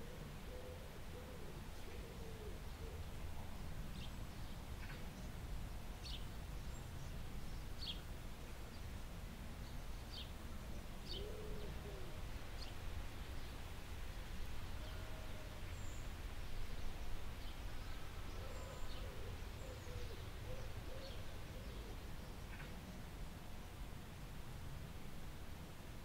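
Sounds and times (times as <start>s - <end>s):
low arched bird calls: 14.8s - 23.0s
birds chirping: 15.7s - 23.0s.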